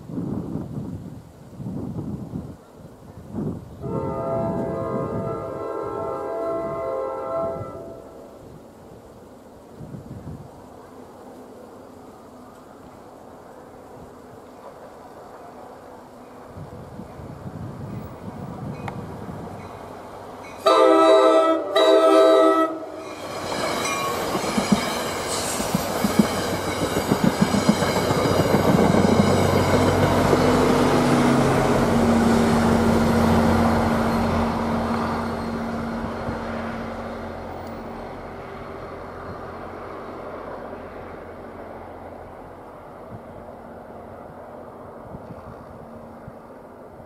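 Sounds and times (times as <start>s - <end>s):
diesel locomotive engine drone: 2.2s - 47.0s
train air horn blasts: 3.8s - 8.3s, 20.6s - 23.2s
train wheels clicking over rail joints: 23.0s - 31.5s.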